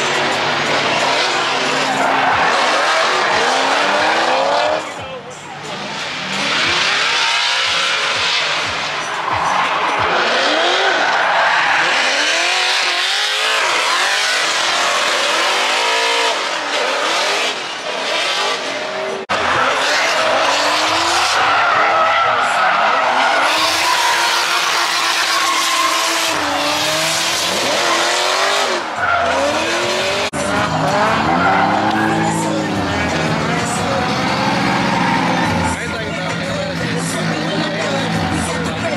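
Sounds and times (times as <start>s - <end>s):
car engines revving: 0.0s - 38.9s
tyres squealing: 19.4s - 38.9s.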